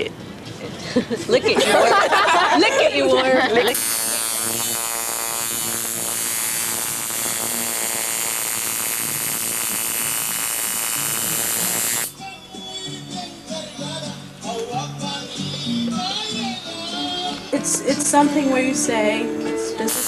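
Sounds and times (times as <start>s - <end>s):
tattoo machine buzzing: 3.7s - 12.2s.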